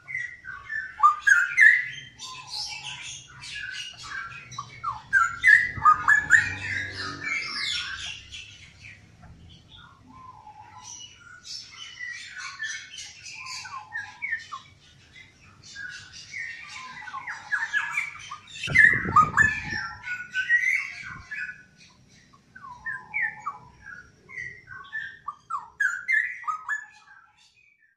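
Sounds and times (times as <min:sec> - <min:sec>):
bulbul singing: 0:00.0 - 0:27.3
low rumble: 0:04.7 - 0:08.3.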